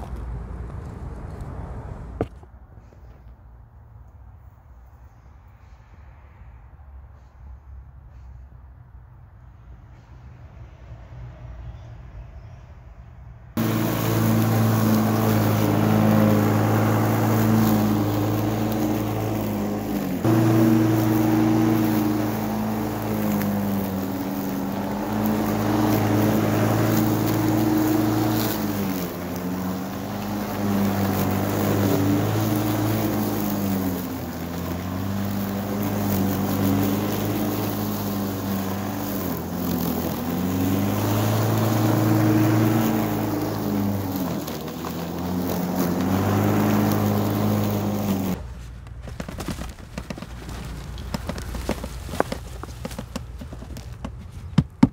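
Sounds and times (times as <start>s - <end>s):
electric lawn mower running: 13.6s - 48.4s, 49.4s - 54.4s
rustling: 13.6s - 54.9s.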